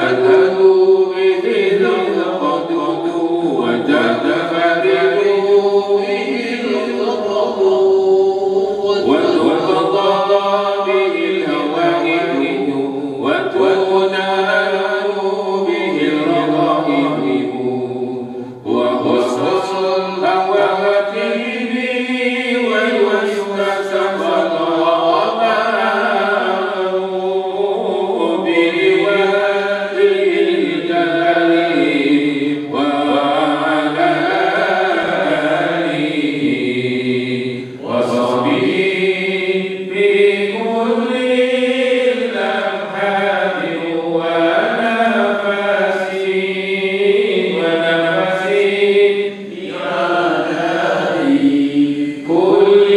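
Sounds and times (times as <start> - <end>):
man chanting over loudspeaker: 0.0 - 52.9.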